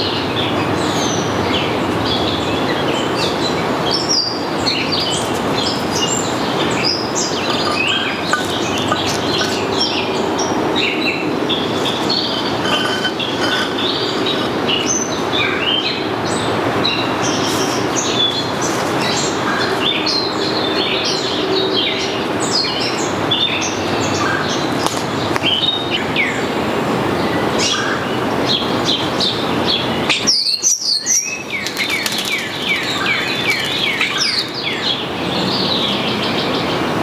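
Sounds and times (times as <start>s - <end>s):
birds chirping and whistling: 3.4s - 17.4s, 29.7s - 35.8s.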